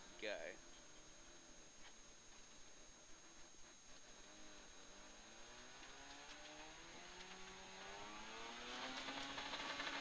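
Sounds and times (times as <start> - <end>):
rotary engine accelerating: 4.0 - 10.0.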